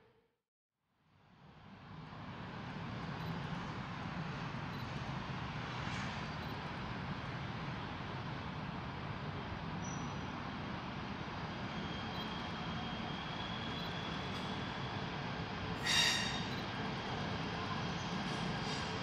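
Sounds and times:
train rumbling with high whine: 0:01.4 - 0:19.0.

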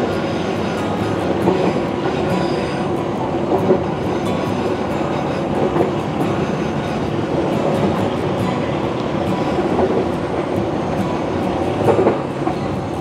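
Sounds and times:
train running rumble: 0:00.0 - 0:13.0
wheels clicking over rails: 0:00.0 - 0:13.0.

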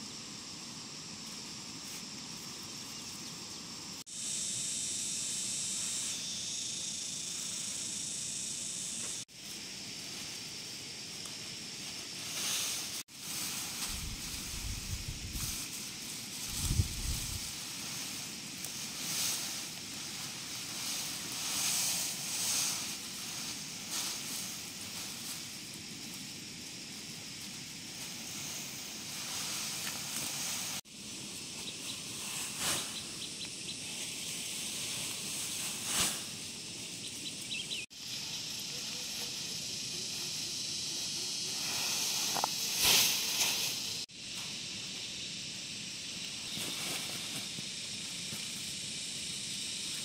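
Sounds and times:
steady hiss: 0:00.0 - 0:50.0
dry grass rustling: 0:09.3 - 0:44.0.

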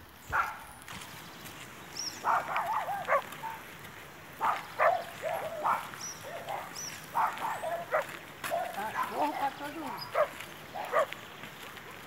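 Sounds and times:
dog barking: 0:00.3 - 0:00.7, 0:02.2 - 0:03.6, 0:04.4 - 0:11.1.

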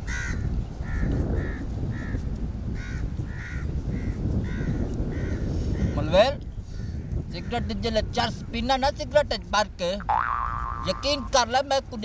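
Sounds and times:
crow cawing: 0:00.1 - 0:02.2, 0:02.8 - 0:06.0.

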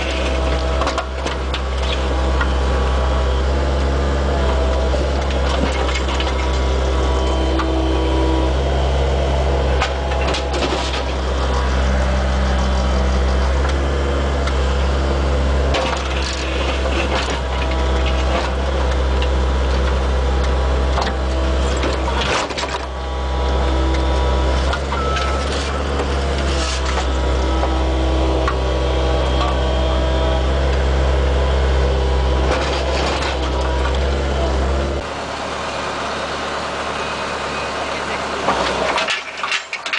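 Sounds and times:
steel bucket scraping asphalt: 0:00.0 - 0:02.9, 0:15.7 - 0:20.3, 0:21.1 - 0:30.2, 0:32.4 - 0:34.6, 0:38.4 - 0:39.9
excavator engine running: 0:00.0 - 0:39.9.

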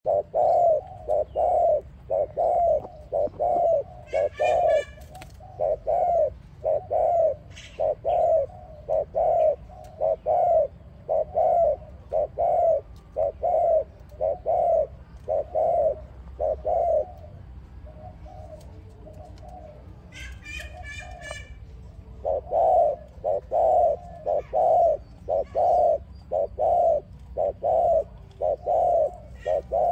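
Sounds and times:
dove cooing: 0:00.0 - 0:29.9
small bird chirping: 0:20.2 - 0:29.9.

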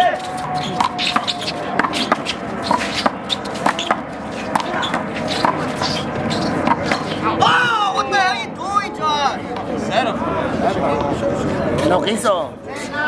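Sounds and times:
faint crowd chatter: 0:00.0 - 0:13.0
handball slapping wall and court: 0:00.4 - 0:07.2.

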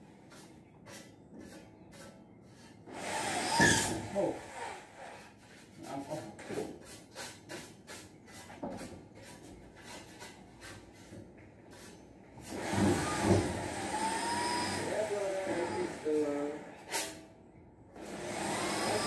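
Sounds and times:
power drill driving into ceiling: 0:02.9 - 0:04.8, 0:12.5 - 0:16.0, 0:18.0 - 0:19.0.

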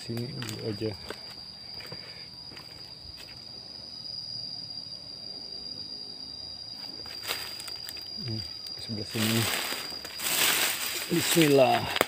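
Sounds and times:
high-pitched insect drone: 0:00.0 - 0:12.0
footsteps rustling through leaves: 0:07.0 - 0:07.9, 0:09.0 - 0:12.0.

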